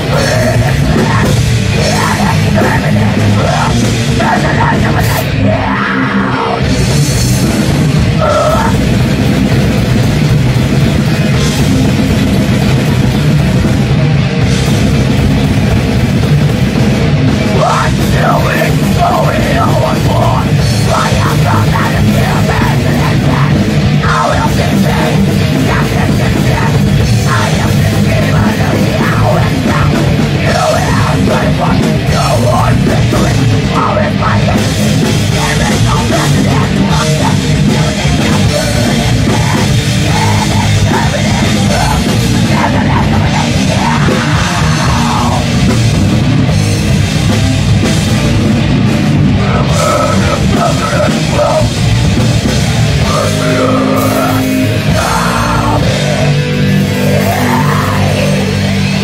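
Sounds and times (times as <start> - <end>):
heavy metal band playing live: 0.0 - 59.0.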